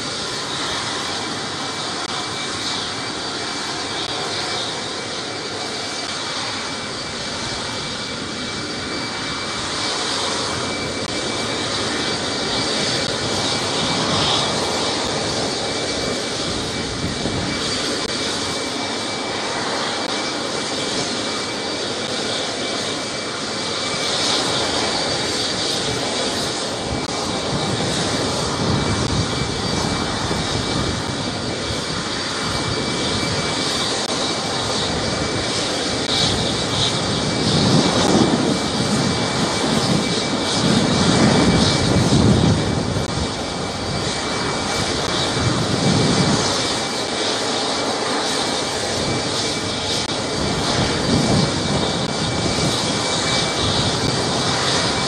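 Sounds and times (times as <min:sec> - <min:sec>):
high-pitched turbine whine: 0:00.0 - 0:55.0
jet engine roar: 0:00.0 - 0:55.0.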